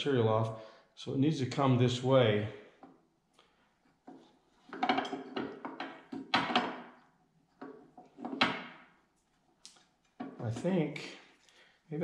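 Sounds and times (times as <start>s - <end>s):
metal clunks and rattles: 4.0s - 8.9s.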